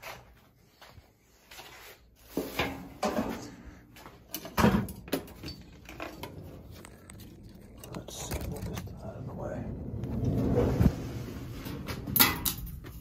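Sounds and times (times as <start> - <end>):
objects knocking and clattering: 4.3 - 9.0, 11.6 - 13.0.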